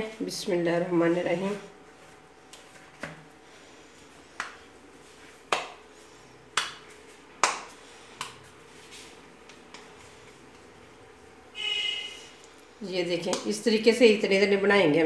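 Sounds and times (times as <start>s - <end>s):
hands slapping dough: 4.0s - 10.8s, 13.2s - 13.6s.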